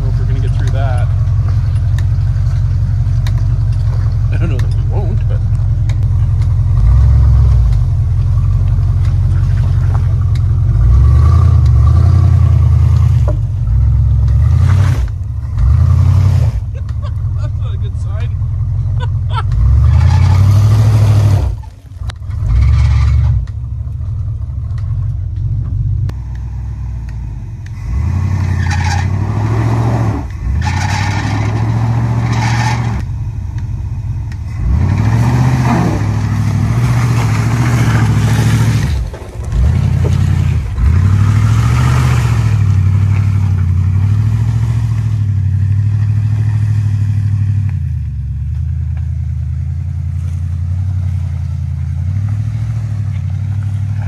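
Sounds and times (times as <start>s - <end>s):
truck engine revving: 0.0s - 54.0s.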